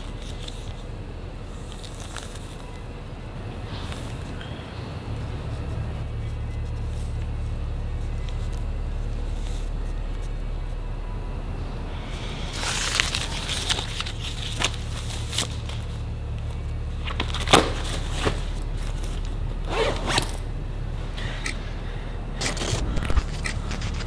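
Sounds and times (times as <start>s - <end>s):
steady low hum: 0.0s - 24.0s
backpack rustling: 17.0s - 20.5s
zipper strokes: 19.6s - 20.4s, 22.4s - 24.0s.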